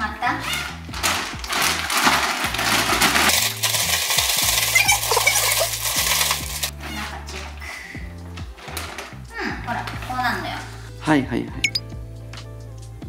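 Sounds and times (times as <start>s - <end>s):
background music: 0.0s - 13.0s
plastic bag crinkling: 0.5s - 7.0s.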